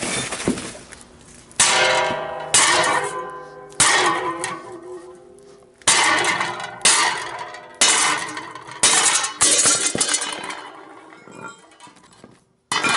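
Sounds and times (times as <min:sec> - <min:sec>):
hammer striking steel: 0:01.6 - 0:11.8.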